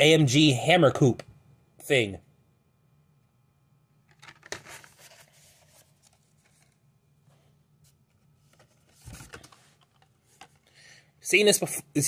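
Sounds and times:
plastic cards rustling and clacking: 0:04.0 - 0:06.8, 0:07.9 - 0:10.7.

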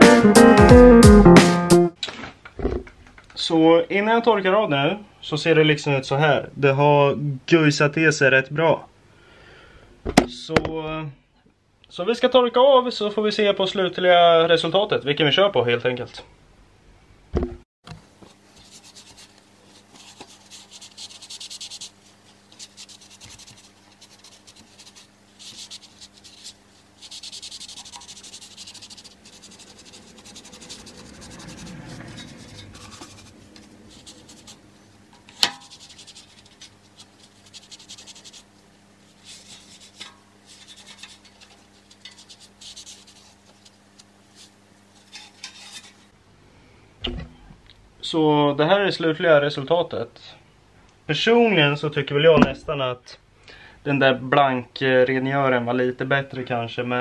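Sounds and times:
sharp knock: 0:10.1 - 0:10.7
low steady hum: 0:16.2 - 0:55.7
rag scrubbing metal: 0:18.6 - 0:38.5, 0:39.1 - 0:43.6, 0:45.0 - 0:46.1.

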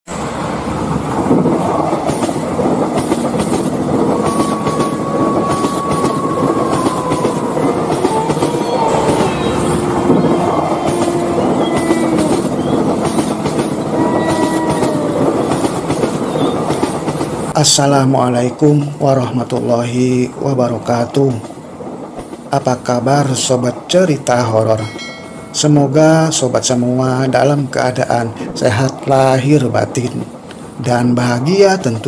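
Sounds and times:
train rumble and rattle: 0:00.1 - 0:32.0
wheels clickety-clack: 0:00.9 - 0:17.6, 0:21.0 - 0:25.4
thin squealing tones: 0:04.2 - 0:15.2.

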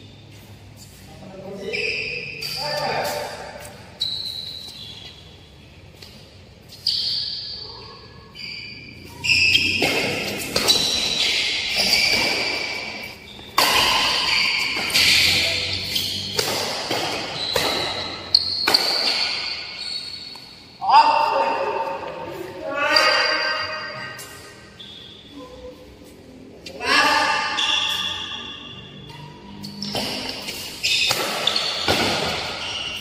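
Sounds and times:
shoes squeaking on floor: 0:00.0 - 0:20.7, 0:21.7 - 0:33.0
rackets hitting shuttlecock: 0:09.3 - 0:20.5, 0:29.1 - 0:33.0.

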